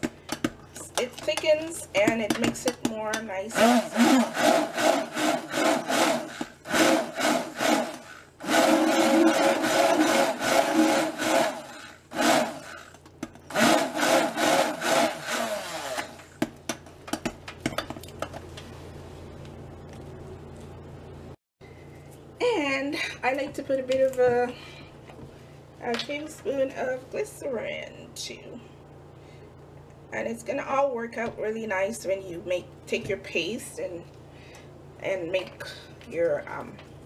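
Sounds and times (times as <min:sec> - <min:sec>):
stick blender running: 0:03.5 - 0:16.5
faint steady hum: 0:15.9 - 0:37.0.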